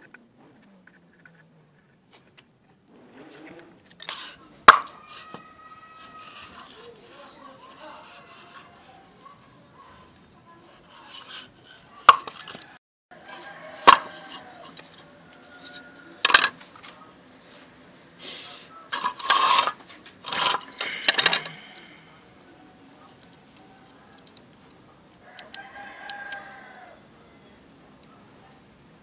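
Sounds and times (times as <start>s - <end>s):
clattering and rustling: 0.0s - 12.8s, 13.4s - 17.8s, 18.9s - 22.2s.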